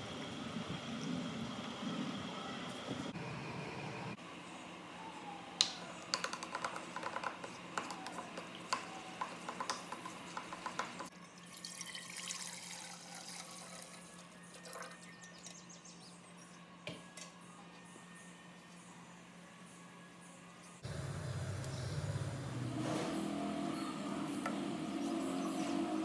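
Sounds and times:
hissing liquid pour: 11.4s - 15.0s.

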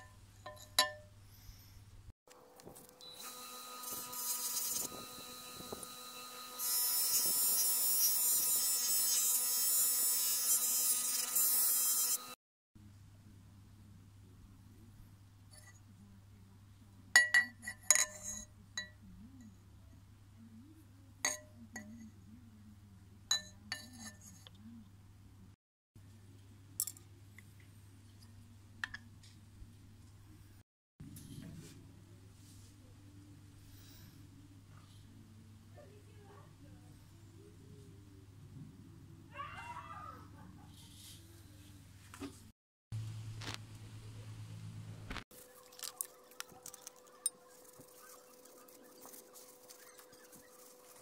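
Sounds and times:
bench grinder motor humming: 3.0s - 12.4s.

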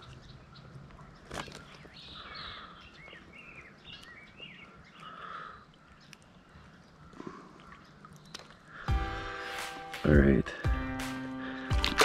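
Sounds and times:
small songbirds chirping: 0.0s - 11.8s.

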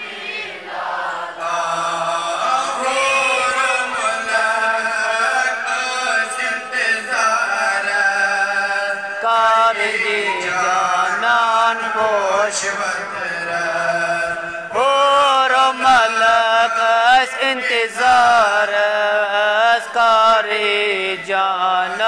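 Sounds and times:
man chanting unaccompanied: 1.4s - 22.0s.

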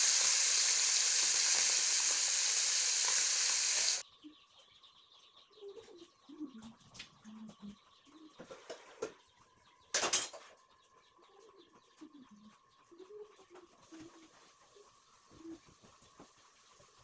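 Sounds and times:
loud burst of noise: 0.0s - 4.0s.

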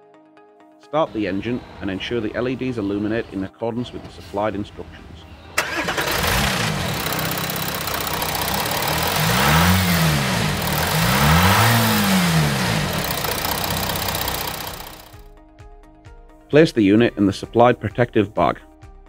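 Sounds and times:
diesel engine starting and revving: 5.6s - 15.2s.

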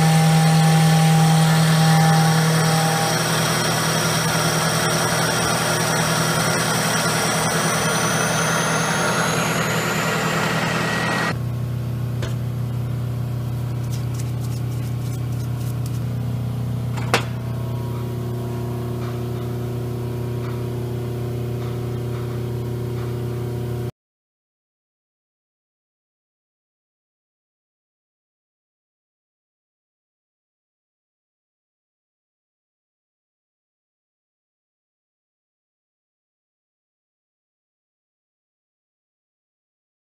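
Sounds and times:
milling machine cutting metal: 0.0s - 11.4s
low machine hum: 0.0s - 23.9s.

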